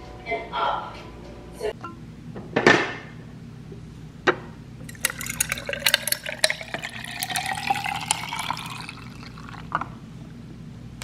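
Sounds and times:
thick drink pouring into glass: 4.8s - 9.8s
ice crackling and clinking: 4.9s - 9.7s.

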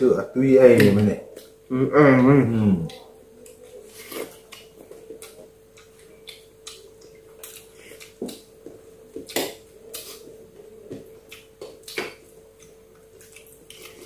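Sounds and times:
faint steady hum: 0.0s - 14.0s
chewing: 3.4s - 14.0s.

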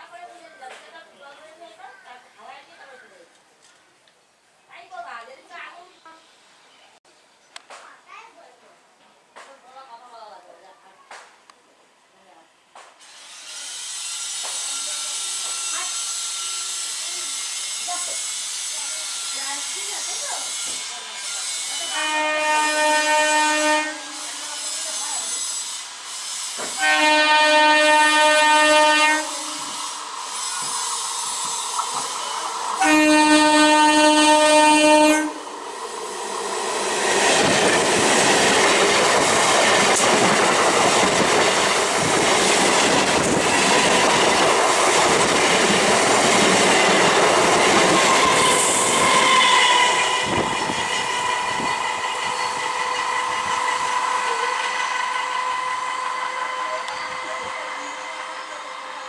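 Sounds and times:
train horn blasts: 20.8s - 24.7s, 26.7s - 29.9s, 32.8s - 35.4s, 47.8s - 58.0s
train wheels clattering on rails: 29.6s - 32.8s, 36.9s - 57.4s.

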